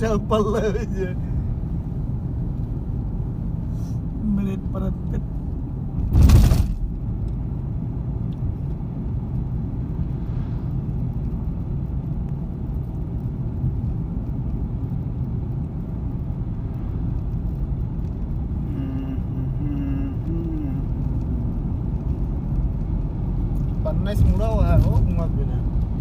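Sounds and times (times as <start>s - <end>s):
car engine and tyre rumble: 0.0s - 26.0s
loud thump: 6.0s - 6.9s.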